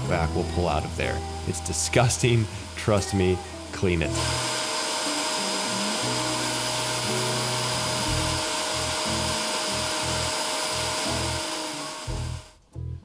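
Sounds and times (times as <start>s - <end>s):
carpet cleaner motor whine: 0.0s - 12.6s
suction hiss: 0.0s - 12.6s
background music with low beat: 5.3s - 13.0s.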